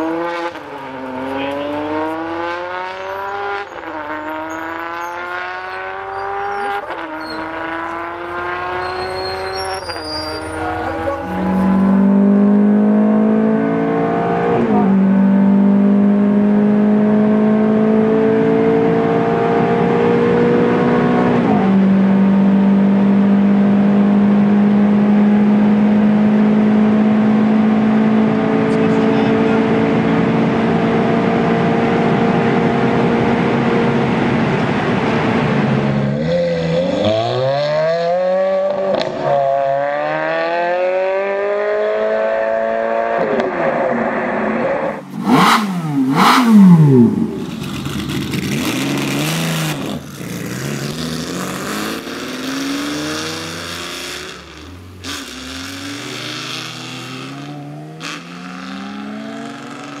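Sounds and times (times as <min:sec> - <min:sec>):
car speeding past: 0:00.0 - 1:00.0
sports car accelerating through gears: 0:00.0 - 1:00.0.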